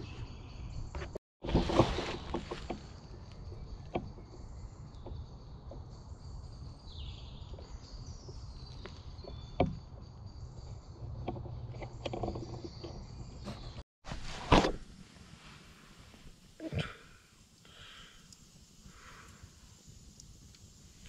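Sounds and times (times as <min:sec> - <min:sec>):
loud rustle: 0:01.4 - 0:02.9.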